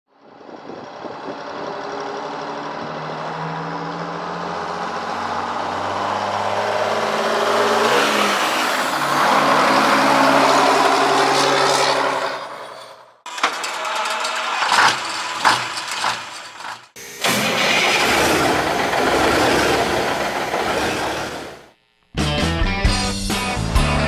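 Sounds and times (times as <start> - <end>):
diesel truck engine passing: 0.2 - 12.7, 17.2 - 21.7.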